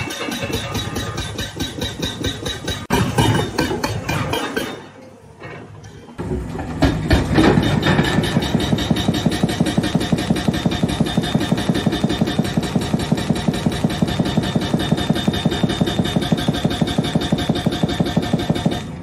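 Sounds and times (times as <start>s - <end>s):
hydraulic breaker hammering rock: 6.6s - 19.0s.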